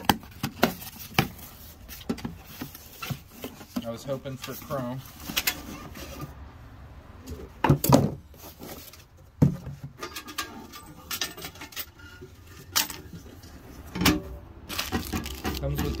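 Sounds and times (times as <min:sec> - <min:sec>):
metal dispenser clattering: 0:14.0 - 0:16.0.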